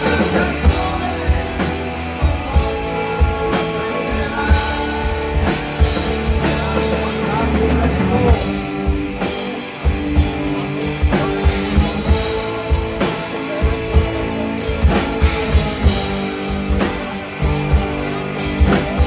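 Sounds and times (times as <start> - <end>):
drum kit beat: 0.0 - 19.0
electric guitars: 0.0 - 19.0.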